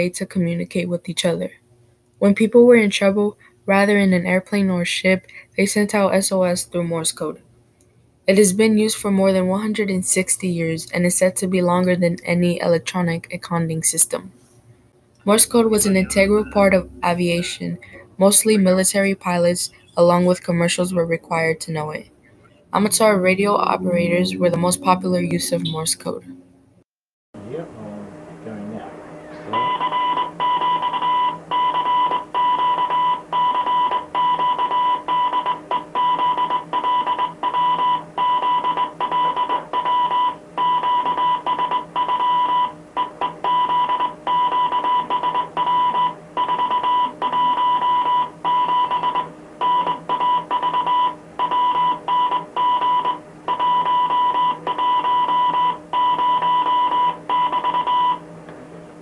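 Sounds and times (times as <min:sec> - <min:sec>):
faint low hum: 0:00.0 - 0:26.8, 0:27.4 - 0:35.3
morse code beeps: 0:15.3 - 0:22.1, 0:22.8 - 0:26.4, 0:29.6 - 0:58.2.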